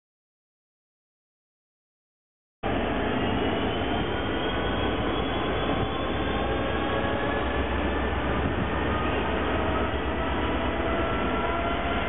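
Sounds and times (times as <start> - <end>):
diesel locomotive engine: 2.6 - 12.0.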